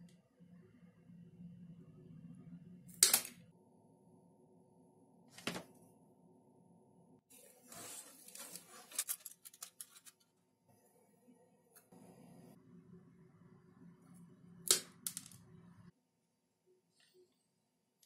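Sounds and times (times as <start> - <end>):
wooden sticks clattering and clicking: 8.6 - 10.2.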